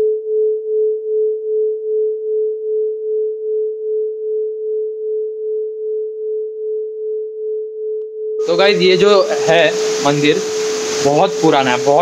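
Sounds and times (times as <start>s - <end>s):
pulsing pure tone: 0.0s - 12.0s.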